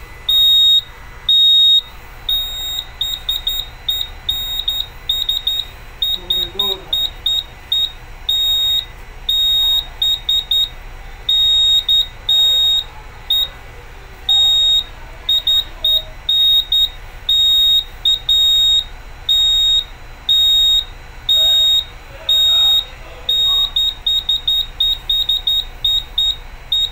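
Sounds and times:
fire alarm panel buzzer beeping: 0.0s - 26.9s.

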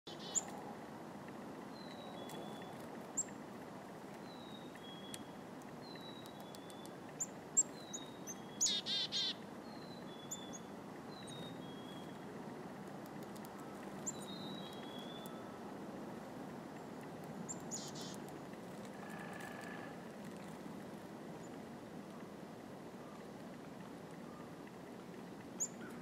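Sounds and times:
chickadees calling: 0.1s - 0.6s, 4.3s - 12.2s, 13.6s - 15.6s, 17.4s - 18.3s
low outdoor hiss: 0.1s - 26.0s.

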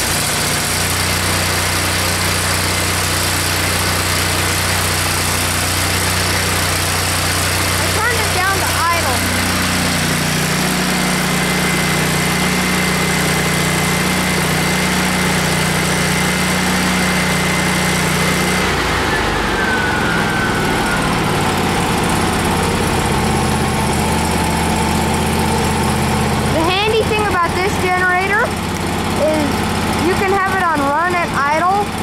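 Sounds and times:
generator engine running: 0.0s - 32.0s
high whine sliding lower: 6.2s - 26.6s.

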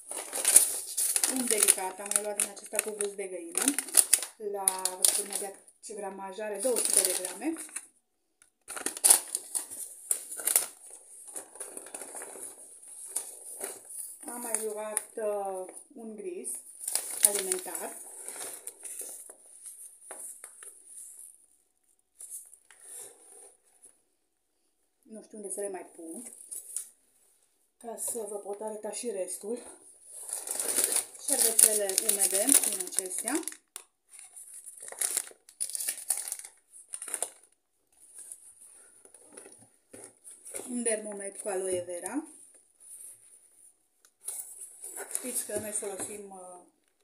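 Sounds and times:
paper packet rustling: 0.0s - 5.6s, 6.5s - 7.8s, 8.7s - 15.7s, 16.7s - 21.4s, 30.2s - 41.4s.

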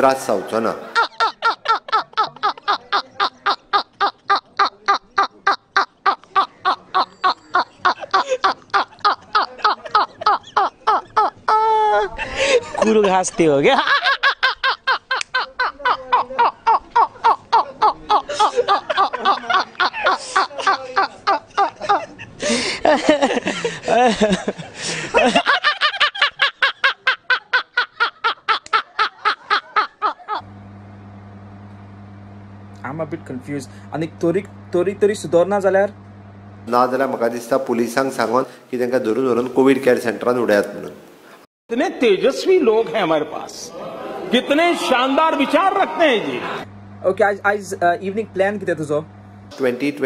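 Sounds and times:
man laughing hard: 0.9s - 30.4s
low steady hum: 28.7s - 39.3s, 43.3s - 50.0s.

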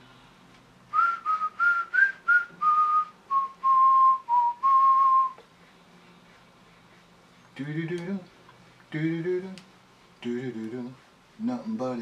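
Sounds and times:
person whistling a tune: 0.9s - 5.4s.

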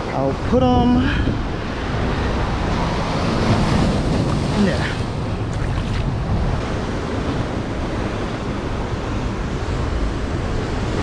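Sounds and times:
ocean surf breaking on rocks: 0.0s - 11.0s
wind buffeting microphone: 0.0s - 11.0s.

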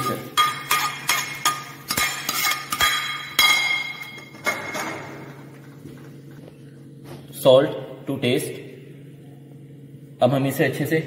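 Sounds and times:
metal ladle clinking on pan: 0.4s - 4.3s.

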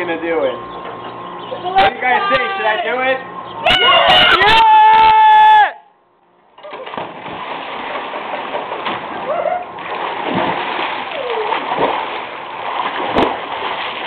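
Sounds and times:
pool water splashing: 6.6s - 14.0s
person swimming with thrashing strokes: 6.7s - 14.0s.

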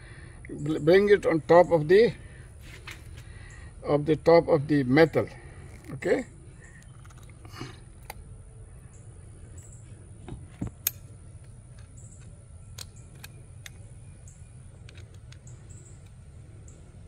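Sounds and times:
low steady hum: 0.0s - 17.0s
metal clicks and taps: 10.5s - 13.8s, 14.8s - 16.2s.

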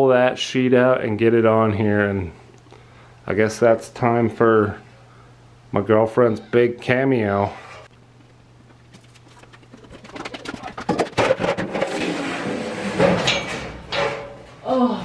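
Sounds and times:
low steady hum: 0.0s - 11.8s
steel sheet flexing and clanking: 9.4s - 14.5s.

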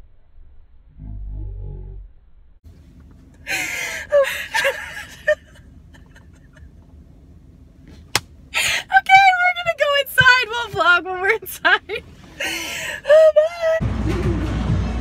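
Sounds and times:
low rumble: 0.0s - 3.5s
women laughing hard: 3.5s - 6.7s, 11.7s - 14.5s.

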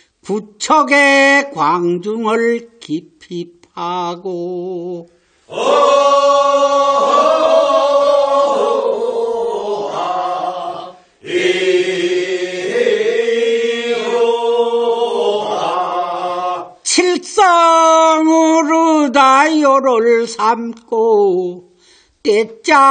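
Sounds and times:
group chanting work song: 5.5s - 16.8s.

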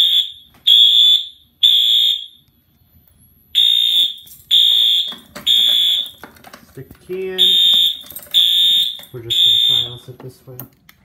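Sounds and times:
fire alarm horn blasts: 0.0s - 2.5s, 3.5s - 6.2s, 7.4s - 10.1s.

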